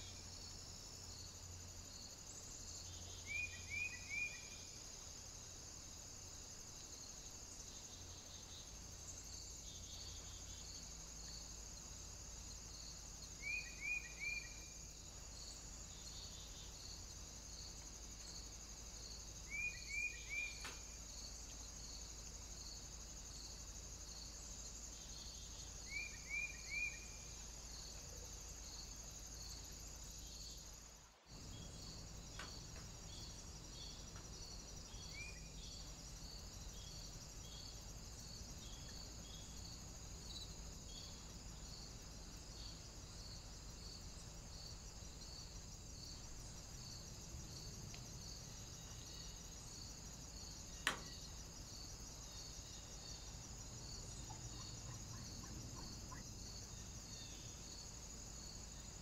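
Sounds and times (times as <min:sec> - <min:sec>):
crickets chirping: 0:00.0 - 0:59.0.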